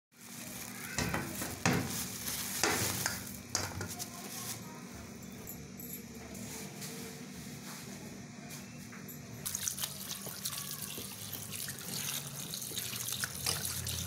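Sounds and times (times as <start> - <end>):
kitchen scrapes and knocks: 1.0 - 4.1.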